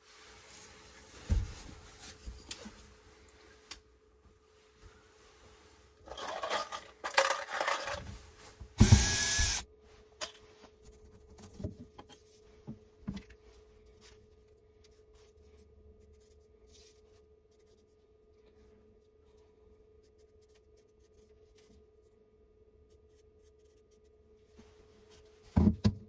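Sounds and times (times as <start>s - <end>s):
rustling and scraping: 0.0s - 3.7s, 4.3s - 8.8s
cordless drill running: 8.8s - 9.6s.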